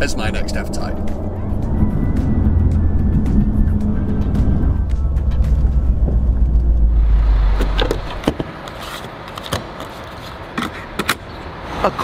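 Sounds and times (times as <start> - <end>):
car engine rumbling: 0.0 - 9.4.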